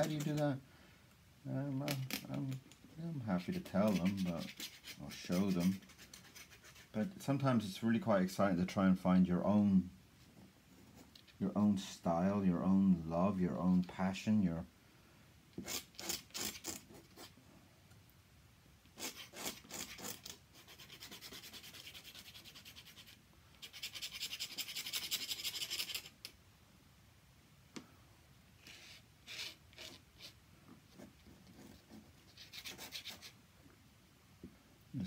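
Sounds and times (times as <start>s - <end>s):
brush scratching across paper: 3.2s - 7.1s, 15.6s - 17.4s, 19.0s - 26.2s, 28.6s - 33.4s.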